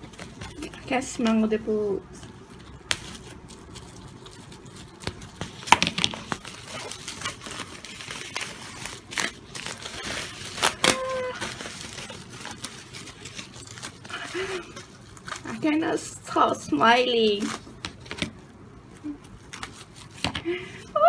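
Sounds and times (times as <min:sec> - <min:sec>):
plastic packaging crinkling: 0:00.0 - 0:16.4.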